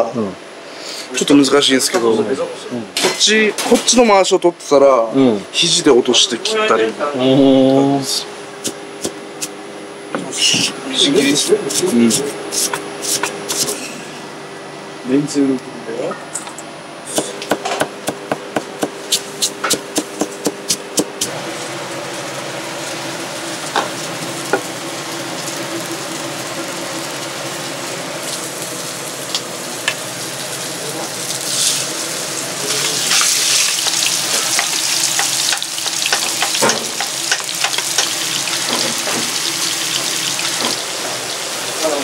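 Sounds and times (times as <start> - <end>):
ground beef sizzling in a pan: 21.3 - 42.0.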